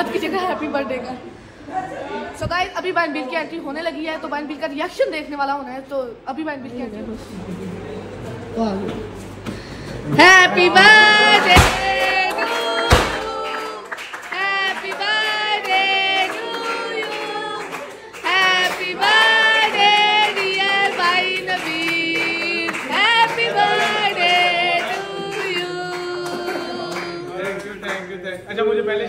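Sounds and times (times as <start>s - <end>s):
song with voices singing: 10.2s - 27.4s
confetti popper bang: 11.5s - 12.2s, 12.8s - 13.4s.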